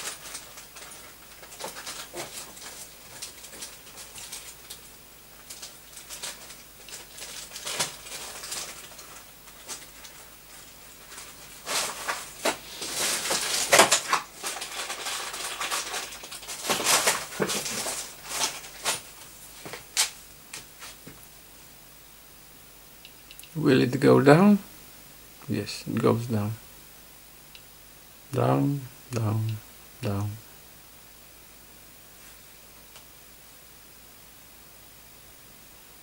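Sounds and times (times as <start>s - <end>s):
rustling handling noise: 0.0s - 21.2s.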